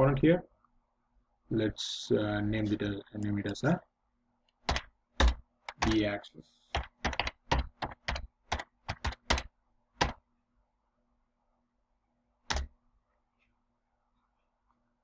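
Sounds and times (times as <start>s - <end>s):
computer keyboard typing: 4.6s - 6.0s, 6.7s - 10.2s, 12.5s - 12.7s.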